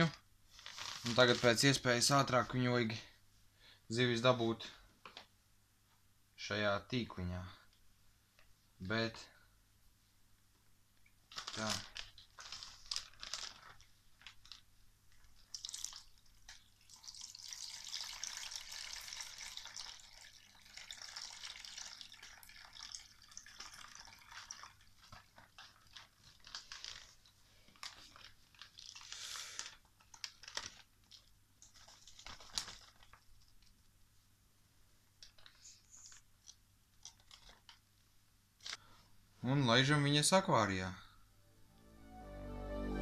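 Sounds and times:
plastic bag crinkling: 0.0s - 2.1s, 11.3s - 33.8s, 35.2s - 37.9s
water pouring into basin: 15.5s - 25.0s
water drips and splashes: 15.5s - 26.8s.

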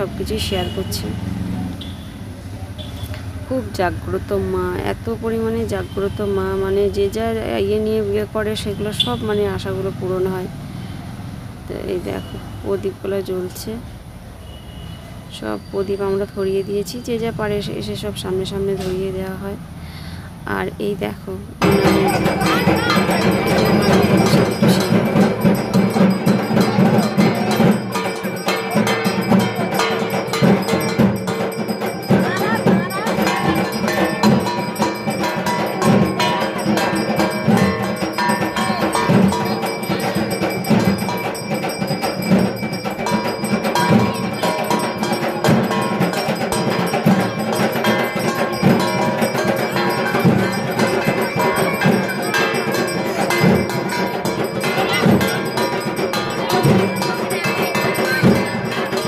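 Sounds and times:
crowd hubbub: 0.0s - 13.8s, 21.4s - 59.0s
temple bells ringing: 21.6s - 59.0s.

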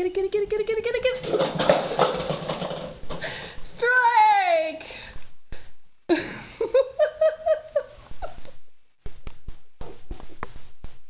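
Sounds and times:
person laughing: 6.1s - 8.6s.

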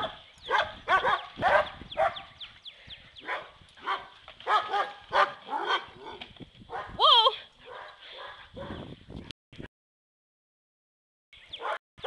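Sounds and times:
dogs barking: 0.0s - 2.4s, 3.2s - 7.0s, 7.6s - 8.9s, 11.5s - 11.8s.

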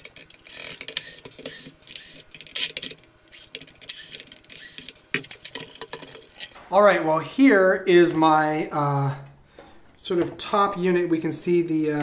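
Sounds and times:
cordless drill running: 0.5s - 2.2s, 3.3s - 5.0s.

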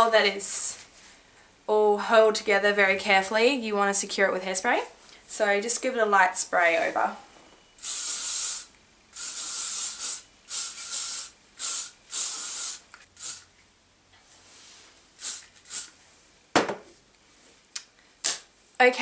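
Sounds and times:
aerosol hairspray hisses: 7.8s - 13.5s, 15.2s - 16.0s.

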